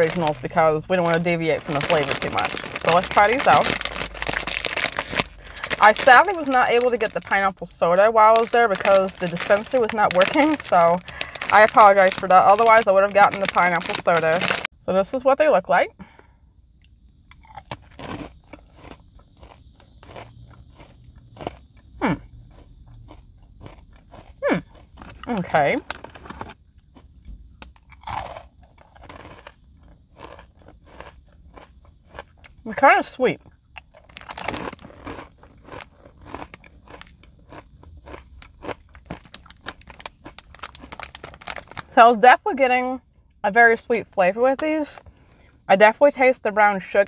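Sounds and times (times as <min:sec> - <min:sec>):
plastic bag crinkle: 0:00.0 - 0:14.7, 0:34.0 - 0:42.0
puffed corn crunching: 0:00.0 - 0:14.7, 0:17.3 - 0:42.0.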